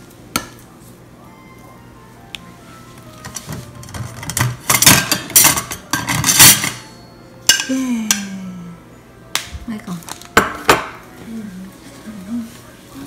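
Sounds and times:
knife and plates clattering: 3.2 - 6.9.

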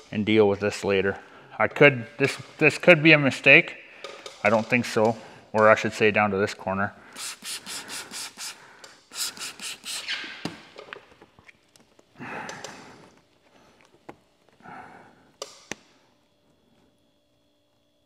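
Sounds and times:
hand rubbing wet film: 7.0 - 12.1
spray bottle hissing sprays: 7.1 - 11.1.

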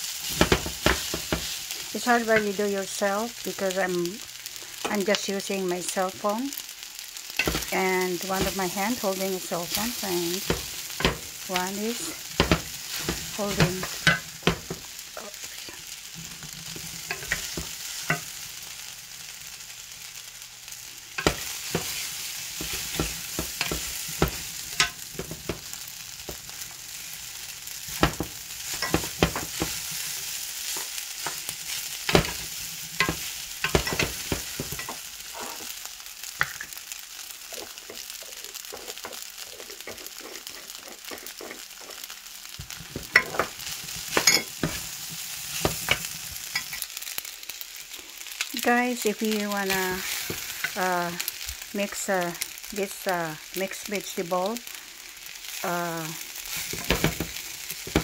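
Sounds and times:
fried rice sizzling in a pan: 0.0 - 58.0
wooden spatula scraping pan: 28.0 - 35.8, 37.6 - 46.7.

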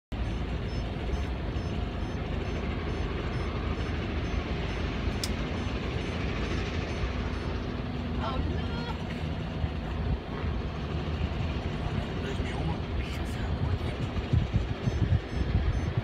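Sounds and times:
boat engine rumbling: 0.1 - 16.0
wind noise: 12.9 - 16.0.

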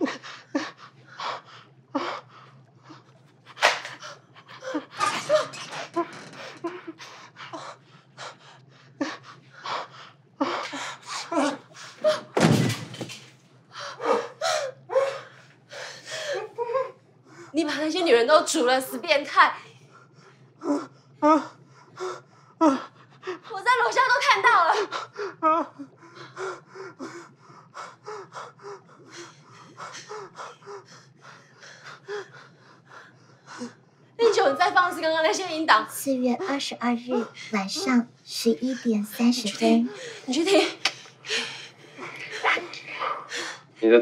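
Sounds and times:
loud slam: 12.4 - 13.2.

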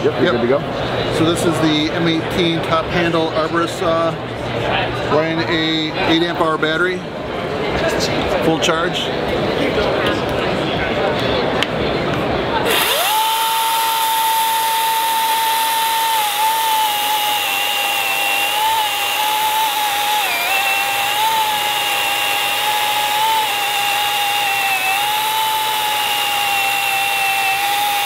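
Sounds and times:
chainsaw cutting log: 12.6 - 28.0.

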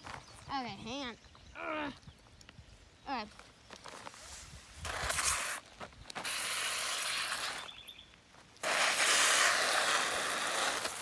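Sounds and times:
hose spraying water on plastic: 6.2 - 7.7, 8.6 - 11.0.

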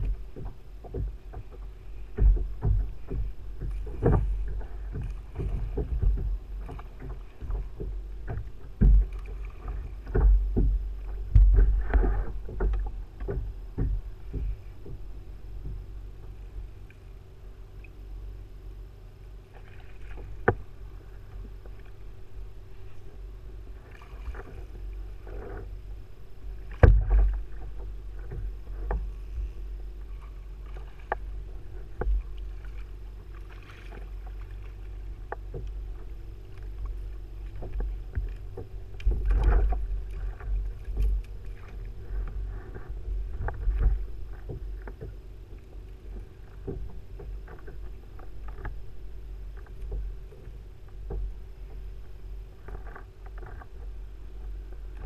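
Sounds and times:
gear knocking on plastic kayak: 0.0 - 16.6, 20.2 - 20.7, 26.5 - 29.1
constant low rumble: 0.0 - 55.0.

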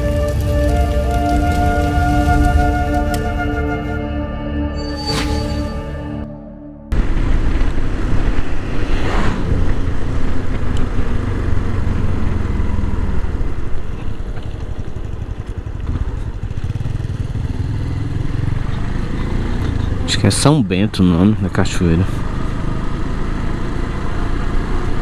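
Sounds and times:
wind rushing on microphone: 7.0 - 12.0
motorcycle engine running: 9.5 - 25.0.

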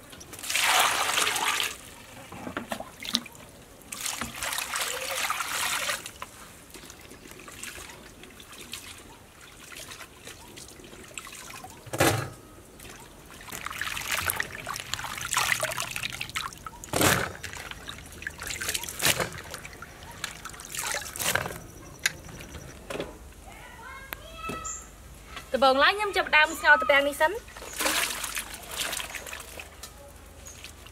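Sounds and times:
water sloshing and splashing: 0.0 - 22.7, 27.4 - 30.9
water pouring into basin: 0.4 - 1.8, 12.8 - 16.8.

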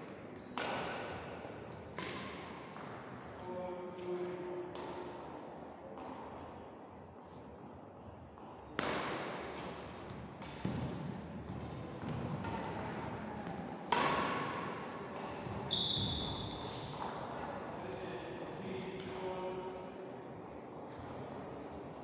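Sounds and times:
racket hitting shuttlecock with echo: 0.4 - 3.2, 4.0 - 5.3, 8.7 - 17.3
shoes squeaking on wooden court: 2.0 - 2.7, 10.0 - 13.9, 15.4 - 16.9.

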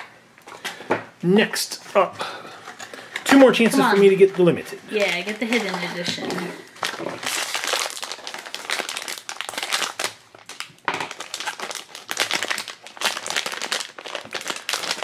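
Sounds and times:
foil bag crinkling: 2.6 - 15.0.

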